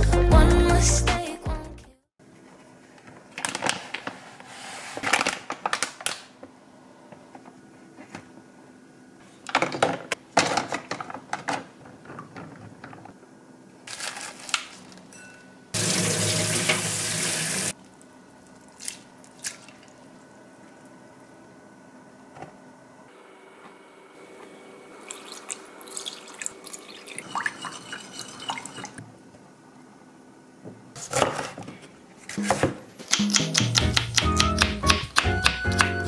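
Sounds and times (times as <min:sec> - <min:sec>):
plastic packaging rustling and clattering: 0:03.1 - 0:06.4, 0:09.5 - 0:13.1, 0:13.9 - 0:15.1
kitchen tap running: 0:15.8 - 0:17.7, 0:25.0 - 0:29.0.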